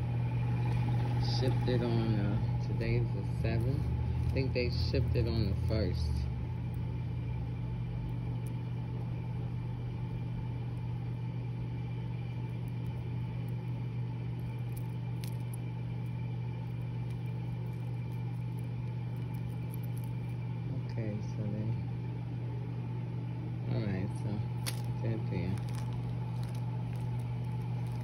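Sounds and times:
low mechanical hum: 0:00.0 - 0:28.0.

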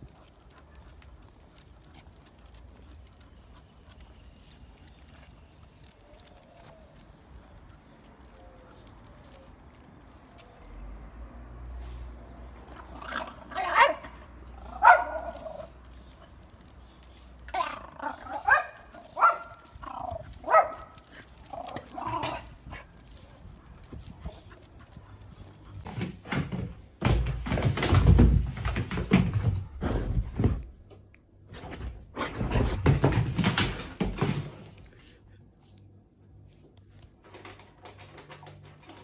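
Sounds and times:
dog barking and yipping: 0:13.1 - 0:15.7, 0:17.5 - 0:22.8.

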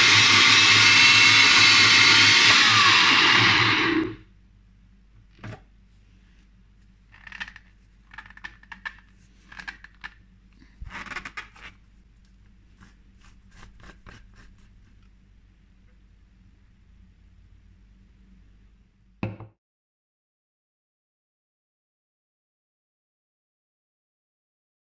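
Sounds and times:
blender motor: 0:00.0 - 0:04.2
plastic scraping: 0:07.1 - 0:11.8.

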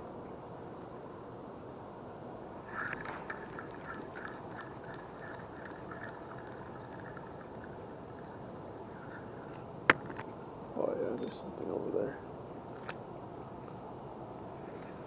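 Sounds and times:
spinning reel clicking: 0:02.7 - 0:09.6.

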